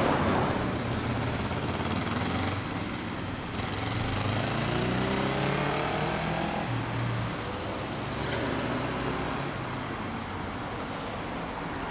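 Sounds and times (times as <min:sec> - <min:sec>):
road traffic noise: 0:00.0 - 0:11.9
motorcycle engine pulling away: 0:00.2 - 0:06.6.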